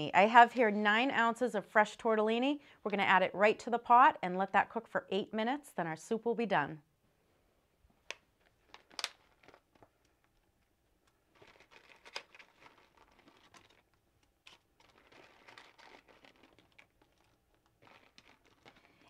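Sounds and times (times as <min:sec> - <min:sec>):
plastic package crinkling: 0:08.0 - 0:19.0.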